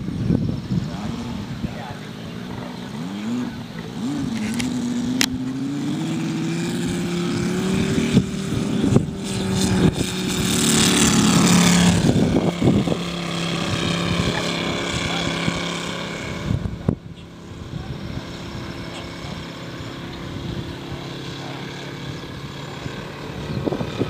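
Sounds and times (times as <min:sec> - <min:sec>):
model airplane engine at full throttle: 0:00.0 - 0:24.0.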